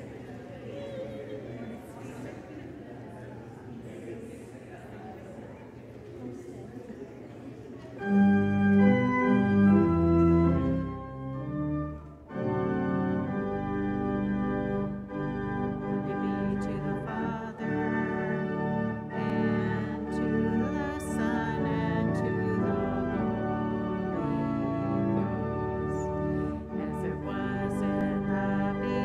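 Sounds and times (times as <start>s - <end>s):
church organ chords: 8.0s - 29.0s.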